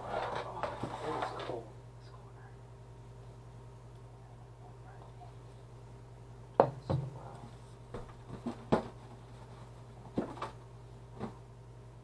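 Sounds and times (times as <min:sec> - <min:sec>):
steady low hum: 0:00.0 - 0:12.0
objects knocking and clunking: 0:06.6 - 0:07.2, 0:07.9 - 0:10.6.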